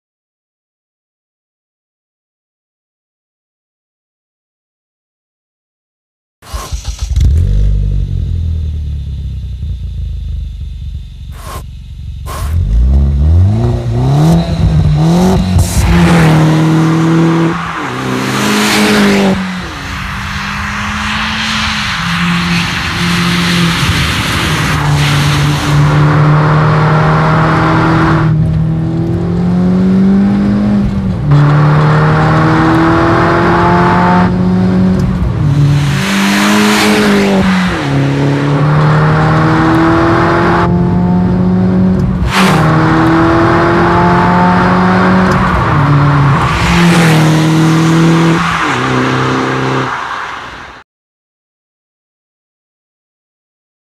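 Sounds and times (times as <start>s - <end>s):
car engine revving through upshifts: 11.3s - 50.1s
loud rushes of noise: 13.7s - 28.4s, 31.0s - 40.2s, 42.3s - 50.8s.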